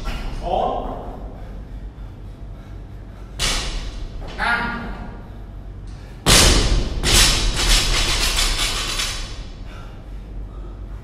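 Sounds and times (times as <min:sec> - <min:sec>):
weight plates rattling: 0:06.3 - 0:09.6.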